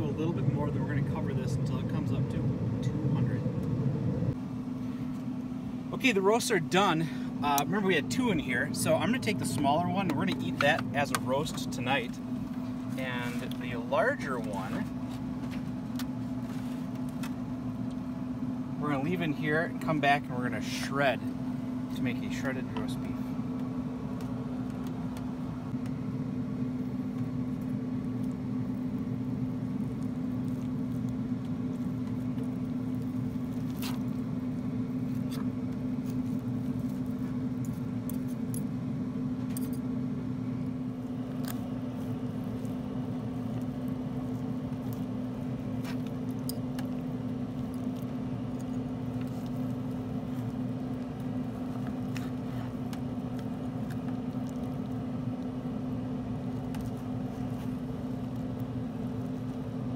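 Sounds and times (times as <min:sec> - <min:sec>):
grill fan motor hum: 0:00.0 - 0:59.9
meat squishing pulled apart: 0:27.1 - 0:38.4, 0:41.2 - 0:59.7.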